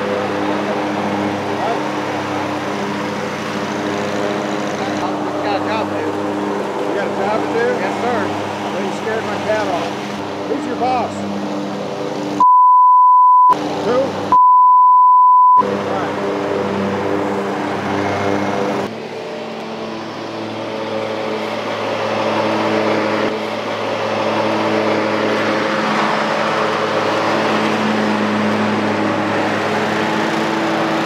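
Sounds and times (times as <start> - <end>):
riding lawn mower engine: 0.0 - 12.4, 13.6 - 14.4, 15.6 - 31.0
censor beep: 12.4 - 13.6, 14.4 - 15.6.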